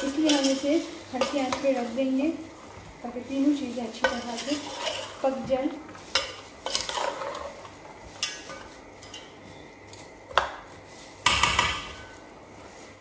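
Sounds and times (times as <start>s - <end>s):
hand mixing food in pot: 0.0s - 13.0s
scraping against pot: 3.8s - 9.6s.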